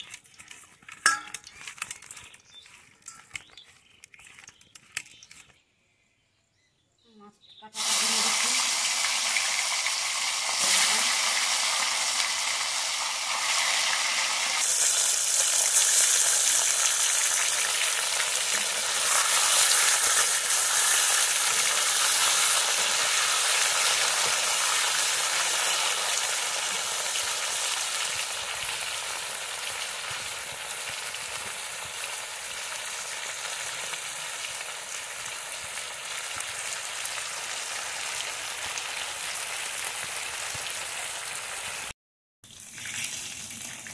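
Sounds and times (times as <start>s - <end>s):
fish frying in hot oil: 7.8s - 41.9s, 42.5s - 43.9s.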